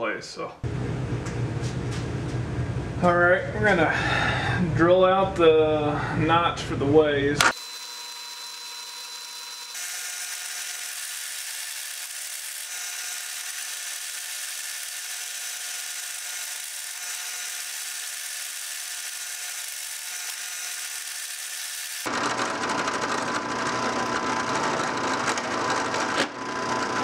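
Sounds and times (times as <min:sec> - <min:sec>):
drill press motor whine: 0:07.4 - 0:27.0.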